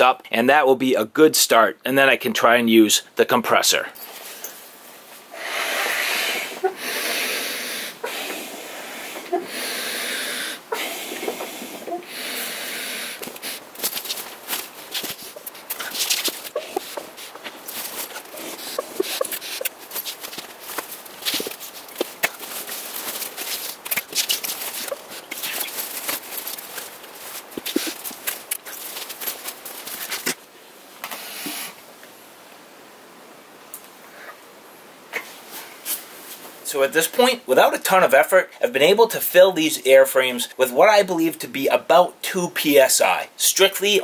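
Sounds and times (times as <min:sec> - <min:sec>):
quick breaths: 0:05.3 - 0:13.7
tent fabric rustling: 0:12.9 - 0:30.5.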